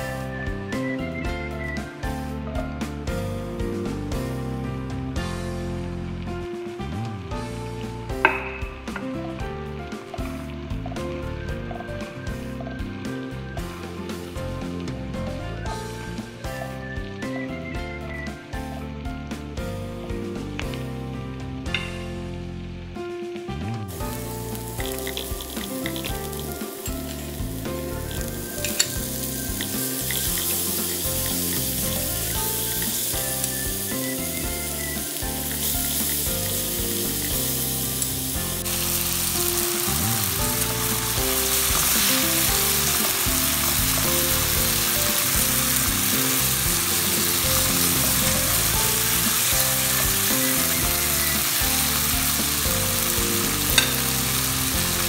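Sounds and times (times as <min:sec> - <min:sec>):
food sizzling in a pan: 0:23.9 - 0:55.0.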